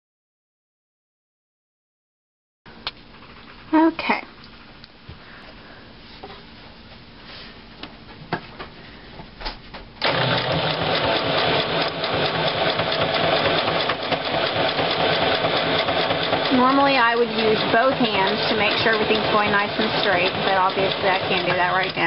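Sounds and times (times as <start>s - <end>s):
electric sewing machine stitching: 10.0s - 22.0s.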